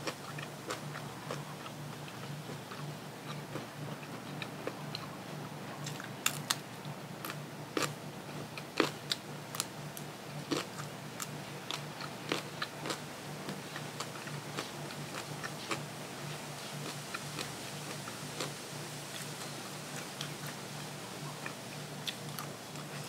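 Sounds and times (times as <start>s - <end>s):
person chewing crunchy food: 0.0s - 5.0s, 5.8s - 6.6s, 7.2s - 9.7s, 10.4s - 20.6s, 21.4s - 23.0s.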